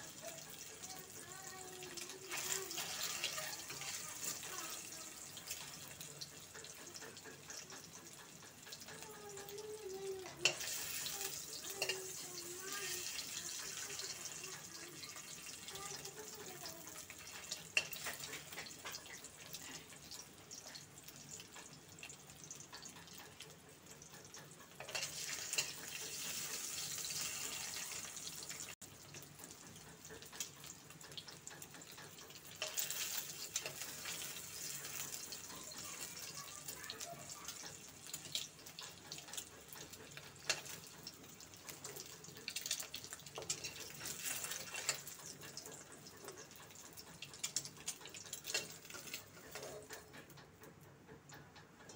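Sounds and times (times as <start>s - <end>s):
eggs sizzling in oil: 0.0s - 51.9s
metal spoon clinking on pan: 10.4s - 12.2s, 17.1s - 19.2s, 24.8s - 28.0s, 31.8s - 36.3s, 41.7s - 45.8s, 47.2s - 50.0s.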